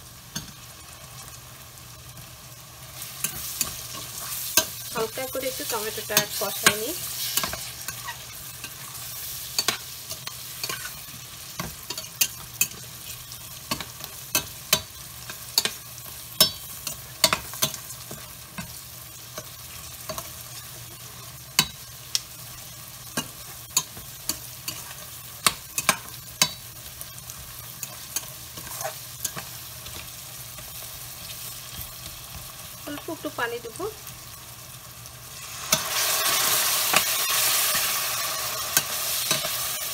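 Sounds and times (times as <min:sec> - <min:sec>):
frying sizzle: 0:00.0 - 0:39.9
metal spatula scraping a pot: 0:27.8 - 0:29.5.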